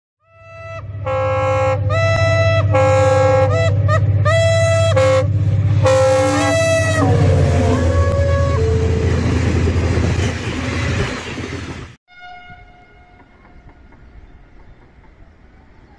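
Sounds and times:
multi-tone air horn tune: 0.3s - 9.1s, 12.1s - 13.5s
low engine drone: 0.3s - 10.5s.

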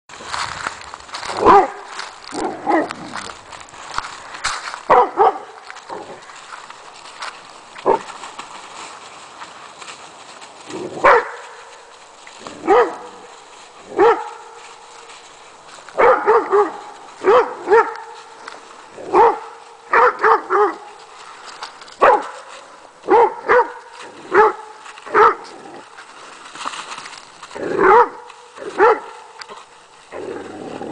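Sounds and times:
dog barking: 1.4s - 3.0s, 4.9s - 5.6s, 11.0s - 11.4s, 12.6s - 13.2s, 14.0s - 14.4s, 16.0s - 18.1s, 19.1s - 20.8s, 22.0s - 22.4s, 23.1s - 25.4s, 27.8s - 29.2s.

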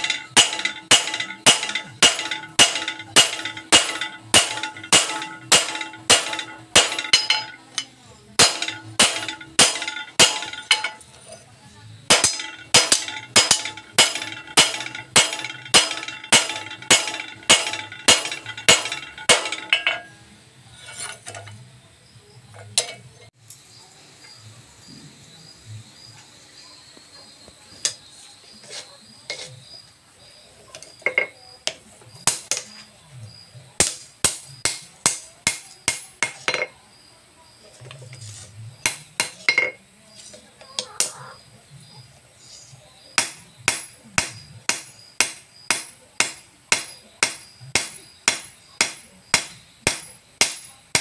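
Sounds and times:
hammer striking metal on anvil: 0.0s - 11.1s, 12.1s - 20.2s, 43.2s - 51.0s.

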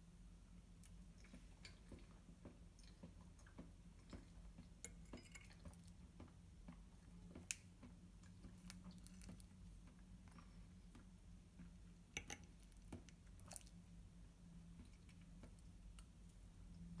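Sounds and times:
fork squishing through food: 8.3s - 9.6s, 12.2s - 13.8s.

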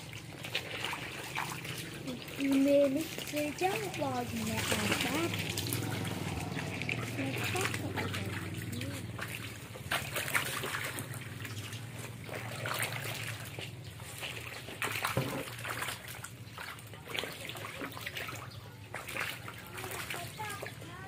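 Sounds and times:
small splashes: 0.0s - 21.0s
water spraying and trickling: 0.0s - 21.0s.

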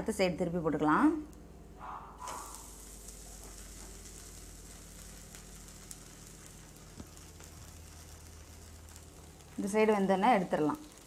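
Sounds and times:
pancake sizzling in oil: 2.2s - 11.0s.

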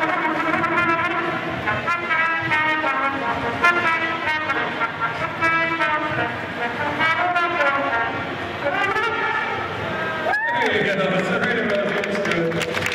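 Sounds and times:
trumpet through loudspeaker: 0.0s - 12.9s.

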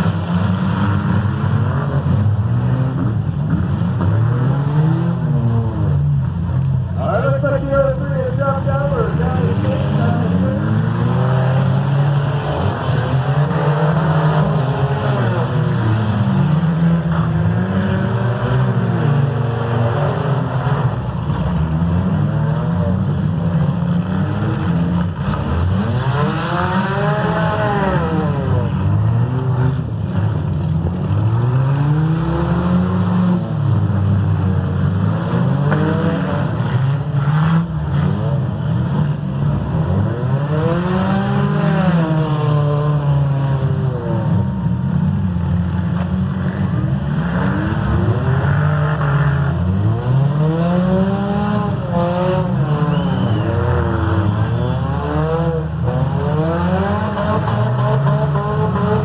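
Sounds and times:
car engines revving: 0.0s - 59.0s.

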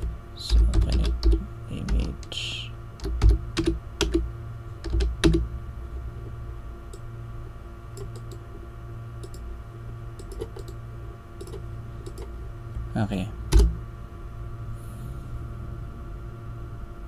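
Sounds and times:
computer keyboard typing: 0.0s - 2.3s, 3.0s - 4.2s, 4.8s - 5.4s, 10.2s - 10.8s, 11.4s - 12.3s, 13.5s - 13.7s
steady low hum: 0.0s - 17.0s.

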